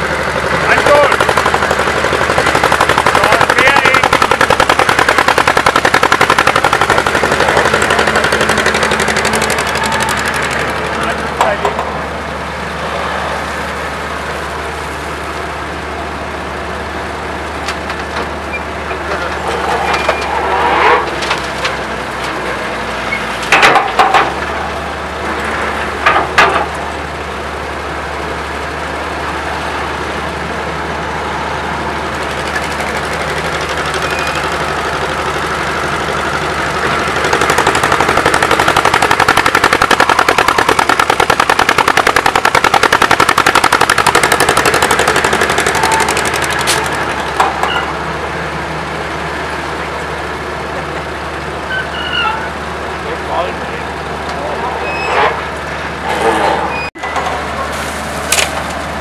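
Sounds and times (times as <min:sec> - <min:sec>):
diesel engine running: 0:00.0 - 0:59.0
loud clanks: 0:23.4 - 0:24.5.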